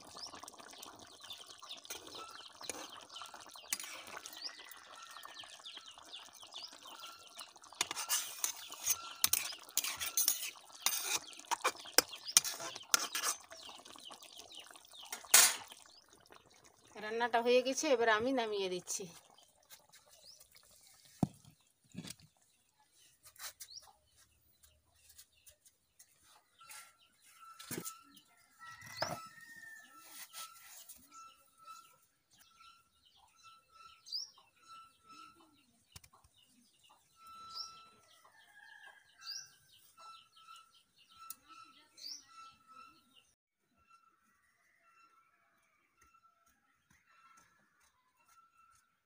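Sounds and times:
birds chirping: 0:00.0 - 0:43.3.

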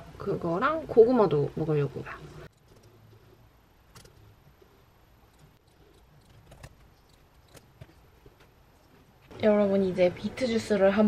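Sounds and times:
low room hum: 0:00.0 - 0:11.0
computer mouse clicks: 0:03.9 - 0:04.2, 0:05.3 - 0:07.9.

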